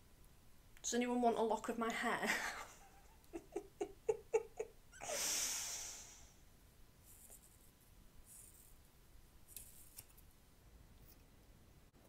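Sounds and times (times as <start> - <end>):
person giggling: 2.2 - 5.3
breathy exhale: 5.0 - 6.4.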